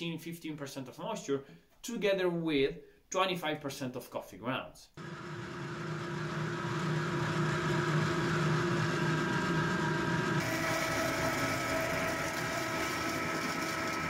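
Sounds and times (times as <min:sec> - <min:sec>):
pellet mill humming: 0:05.0 - 0:14.0.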